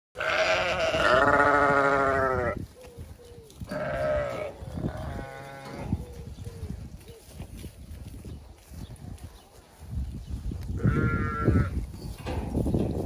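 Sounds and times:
sheep bleating: 0.2 - 2.6, 3.7 - 6.0, 10.8 - 11.8.

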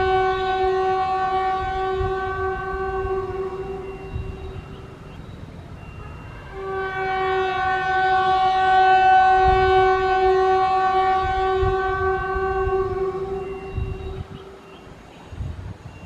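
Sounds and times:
locomotive horn blast: 0.0 - 15.0.

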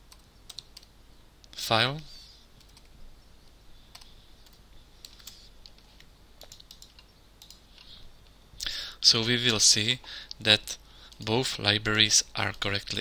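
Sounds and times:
computer keyboard keystrokes: 0.1 - 0.9, 6.4 - 7.6.

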